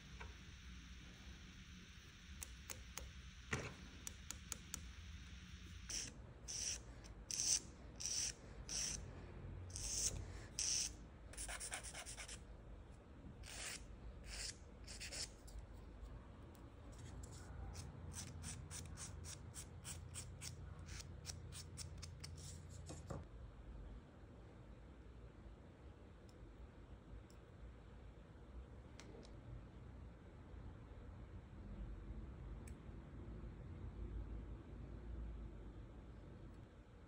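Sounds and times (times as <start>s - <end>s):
nail file rasping on fingernails: 5.8s - 9.0s, 9.7s - 12.4s, 13.4s - 15.5s, 17.0s - 22.7s.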